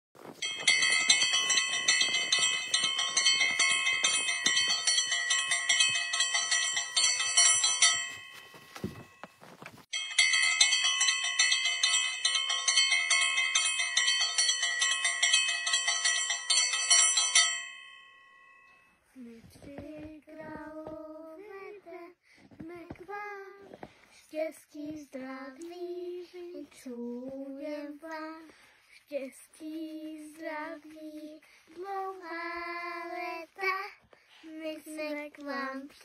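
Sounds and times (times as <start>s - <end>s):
small bells jingling: 0.3s - 18.9s.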